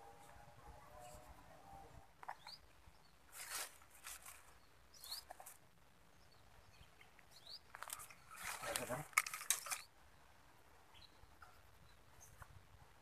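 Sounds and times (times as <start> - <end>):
soft rustling: 3.3 - 4.6.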